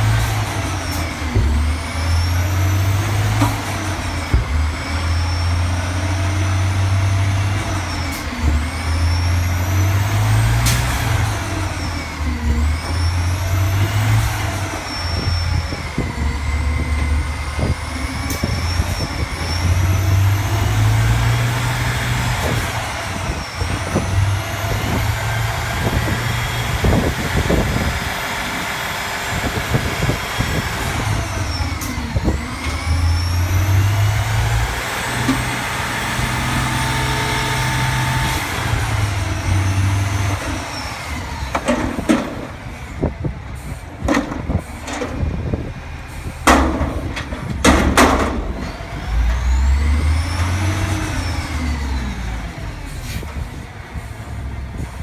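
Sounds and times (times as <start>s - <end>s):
diesel truck engine revving: 0.0s - 55.0s
hydraulic whine: 0.0s - 55.0s
sharp bangs from dumpster: 46.4s - 48.9s.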